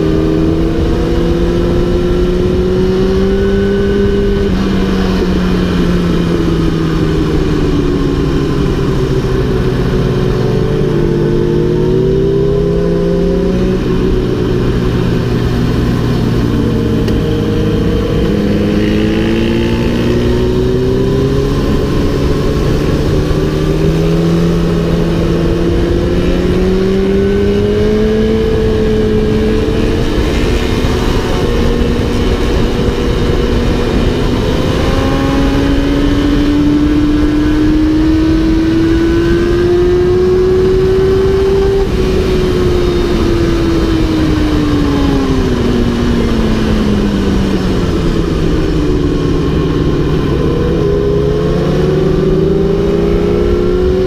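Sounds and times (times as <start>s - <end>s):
motorcycle engine at racing speed: 0.0s - 54.0s
wind rumble on microphone: 0.0s - 54.0s.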